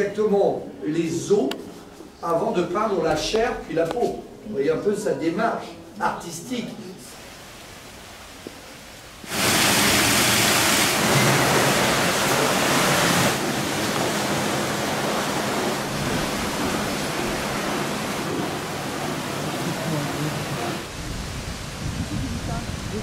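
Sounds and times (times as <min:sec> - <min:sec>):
running water rushing: 0:05.4 - 0:23.0.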